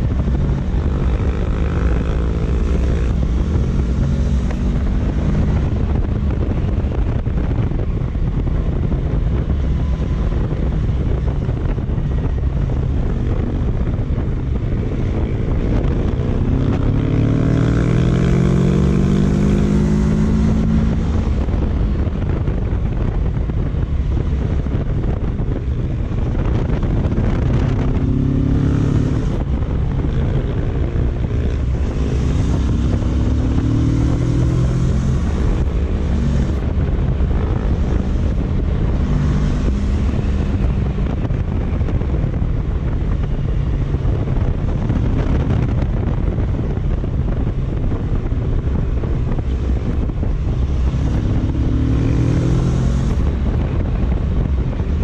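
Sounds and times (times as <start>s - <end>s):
motorcycle engine accelerating: 0.0s - 55.0s
wind buffeting microphone: 0.0s - 55.0s.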